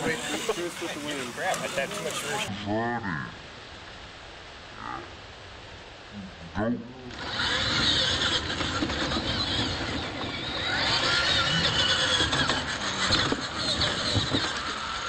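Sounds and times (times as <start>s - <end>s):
toy truck motors whining: 0.0s - 2.5s, 7.1s - 15.0s
tyres on dirt: 0.0s - 2.5s, 7.1s - 15.0s.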